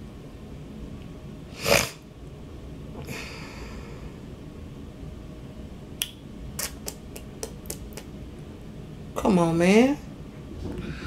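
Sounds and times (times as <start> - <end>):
faint breath: 3.0 - 4.3, 10.6 - 11.0.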